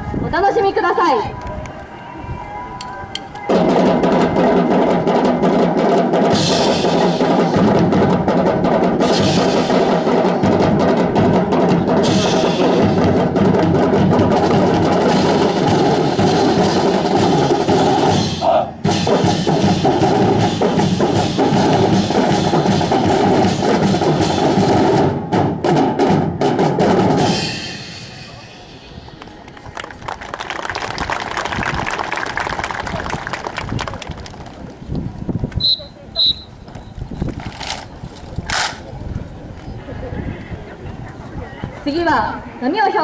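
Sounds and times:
marching band drums: 0:03.5 - 0:28.8
cymbal crashes: 0:27.2 - 0:29.1.

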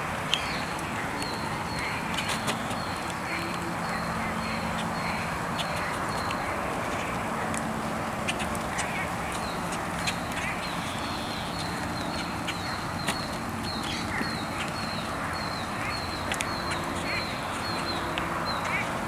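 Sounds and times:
rain falling on water: 0:00.0 - 0:19.0.

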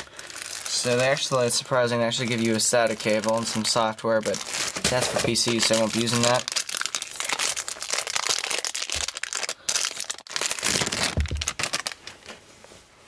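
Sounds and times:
plastic packaging crinkling: 0:00.0 - 0:12.4.

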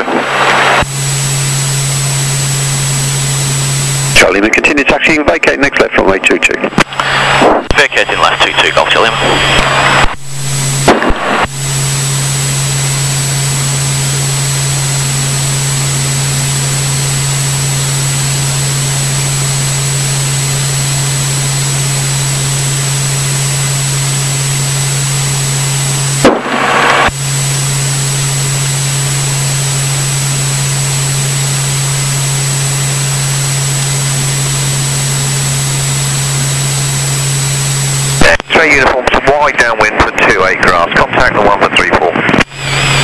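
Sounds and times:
short loud noise burst: 0:10.8 - 0:11.6, 0:26.2 - 0:27.1.

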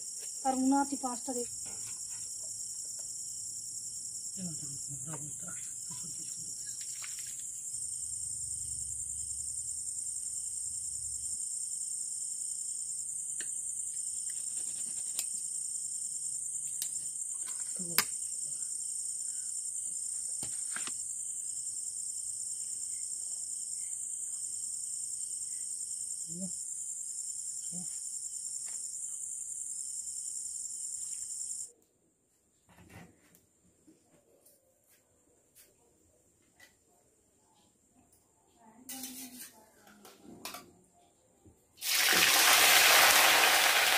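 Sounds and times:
high insect trill: 0:00.0 - 0:31.7, 0:41.8 - 0:43.9
lower insect trill: 0:00.0 - 0:31.7, 0:41.8 - 0:43.9.

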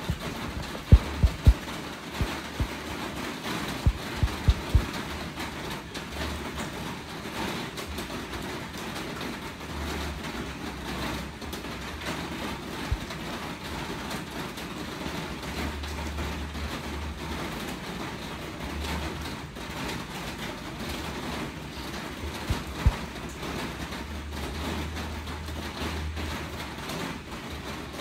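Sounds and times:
low rumble: 0:00.0 - 0:01.6
short dull thumps: 0:00.0 - 0:02.7, 0:03.8 - 0:04.9
steady rain hiss: 0:00.0 - 0:28.0.

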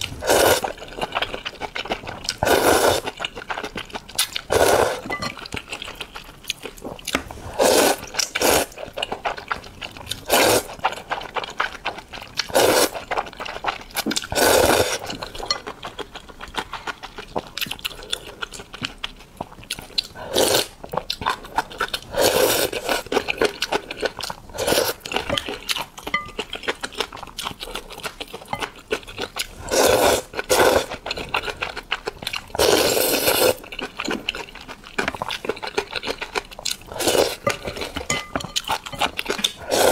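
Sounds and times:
wet chewing and mouth clicks: 0:00.0 - 0:39.9
person slurping noodles: 0:00.1 - 0:00.8, 0:02.4 - 0:03.1, 0:04.5 - 0:05.1, 0:07.4 - 0:08.8, 0:12.5 - 0:13.0, 0:14.3 - 0:15.1, 0:20.2 - 0:20.7, 0:22.1 - 0:23.0, 0:29.5 - 0:30.9, 0:32.6 - 0:33.6, 0:36.8 - 0:38.0, 0:39.3 - 0:39.9.

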